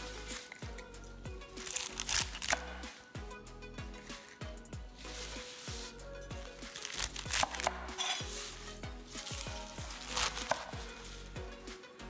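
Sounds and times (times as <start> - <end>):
background music: 0.0 - 12.0
knife cutting crisp stems on board: 1.6 - 2.7, 6.6 - 8.6, 9.2 - 11.0.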